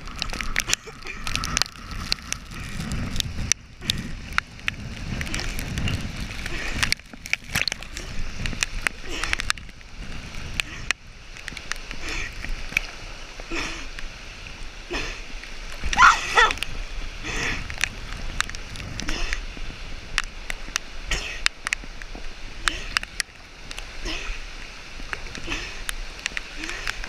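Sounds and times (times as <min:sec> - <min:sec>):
water rushing over rock: 0:00.0 - 0:27.0
person calling out: 0:16.0 - 0:16.6.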